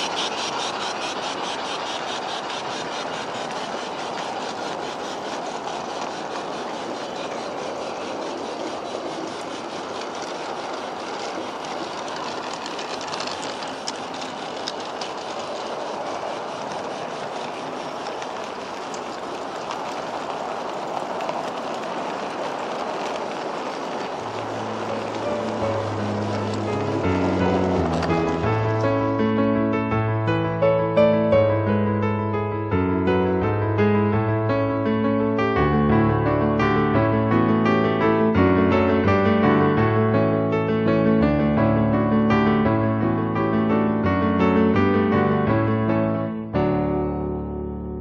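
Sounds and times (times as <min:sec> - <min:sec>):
model train wheels rolling on rails: 0:00.0 - 0:30.0
music: 0:24.4 - 0:48.0.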